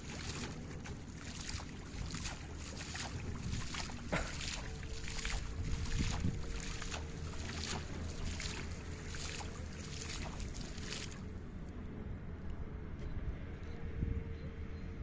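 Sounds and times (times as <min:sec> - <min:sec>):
water splashing: 0:00.0 - 0:11.6
wind rumble on microphone: 0:00.0 - 0:15.0.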